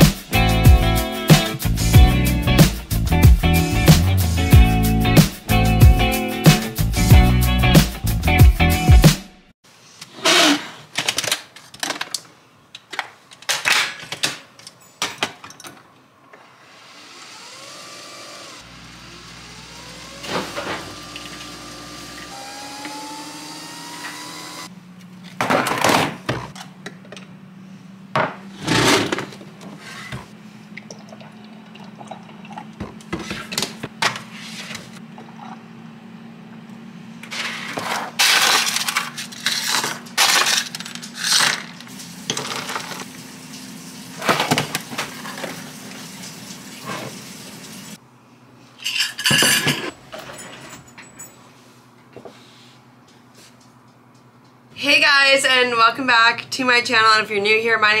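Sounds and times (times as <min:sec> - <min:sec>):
coffee machine brewing hum: 0:16.7 - 0:25.5, 0:26.3 - 0:38.1.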